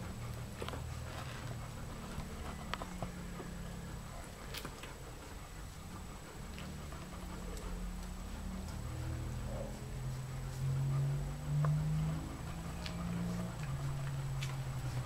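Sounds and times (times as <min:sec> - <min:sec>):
puppies humming grunts: 0:00.0 - 0:15.0.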